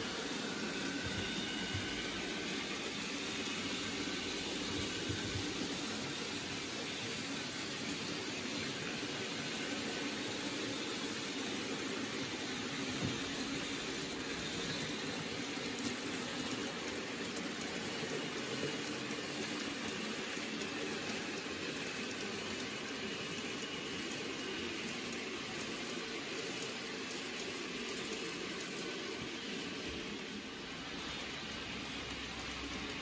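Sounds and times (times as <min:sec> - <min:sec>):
model trains whirring: 0:00.0 - 0:33.0
faint irregular ticks: 0:12.4 - 0:29.2.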